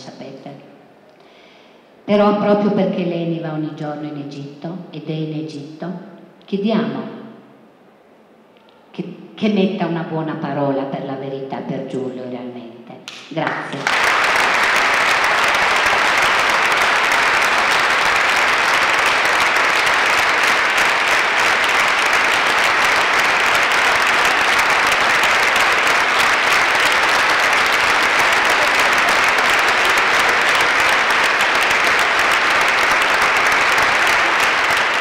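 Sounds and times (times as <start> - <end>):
audience applauding: 13.4 - 35.0.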